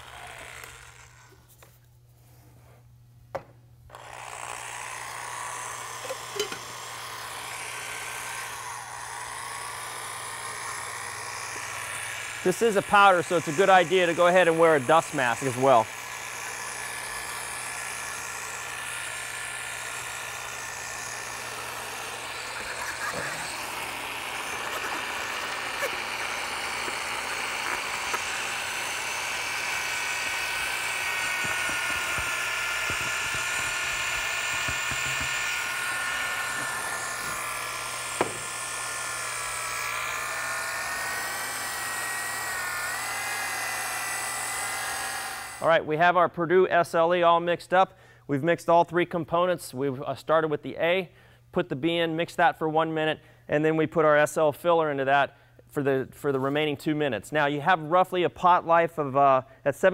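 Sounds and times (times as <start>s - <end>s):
electric paddle mixer whine: 0.0s - 1.4s, 3.9s - 45.6s.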